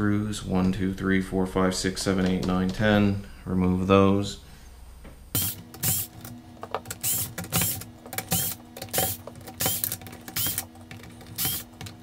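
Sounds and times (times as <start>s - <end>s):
electric screwdriver motor whine: 5.4s - 6.1s, 7.0s - 10.7s, 11.3s - 11.8s
screwdriver clicking: 5.4s - 12.0s.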